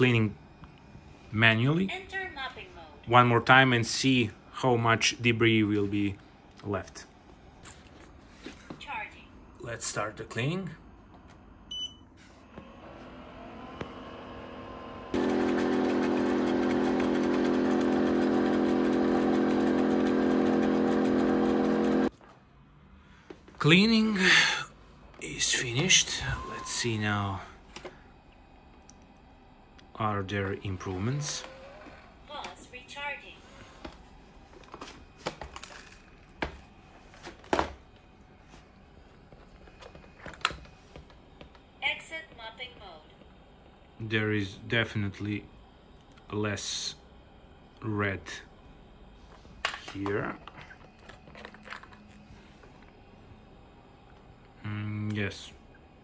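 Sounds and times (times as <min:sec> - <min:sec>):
short electronic beep: 0:11.7 - 0:12.0, 0:26.2 - 0:27.0
loud steady motor hum: 0:12.5 - 0:22.1.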